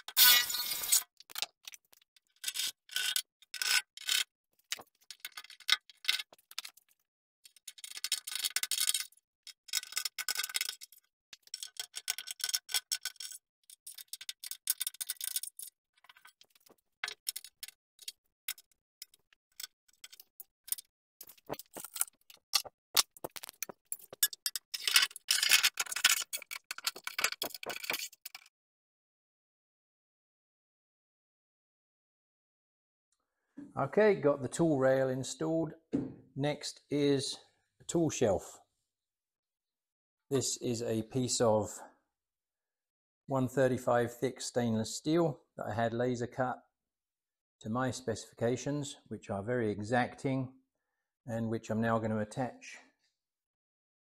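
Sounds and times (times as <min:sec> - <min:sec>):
metal rattling and scraping: 0:09.7 - 0:28.5.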